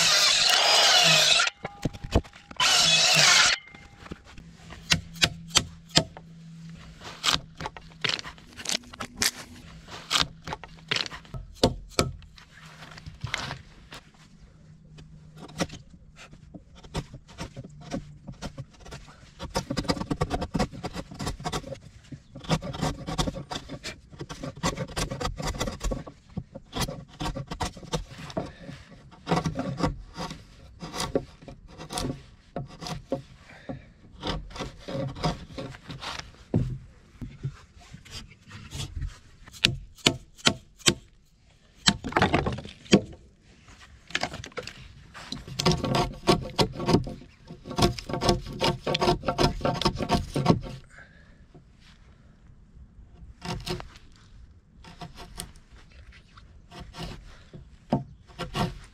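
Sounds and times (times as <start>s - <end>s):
hammer and chisel knocking wood: 39.6s - 41.1s.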